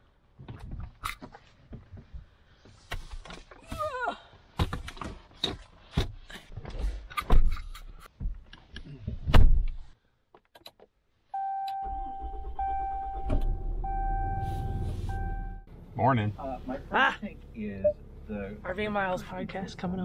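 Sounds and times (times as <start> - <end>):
intermittent steady tone: 11.3 - 19.9.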